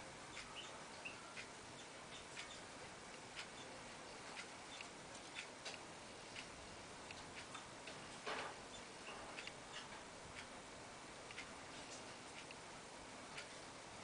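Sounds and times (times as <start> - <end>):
clock ticking: 0.1 - 8.0, 8.6 - 11.6, 13.3 - 13.6.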